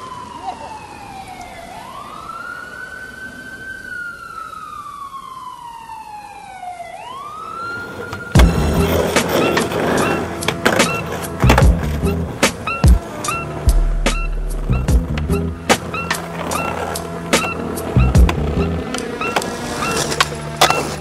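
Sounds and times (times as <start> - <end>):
siren wailing: 0.0 - 21.0
music with strong beat: 8.4 - 19.1.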